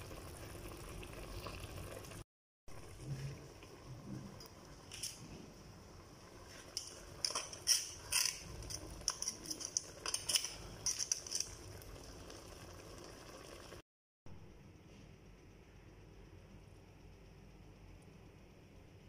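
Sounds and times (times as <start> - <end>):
metal tongs clicking against pot: 6.8 - 11.6.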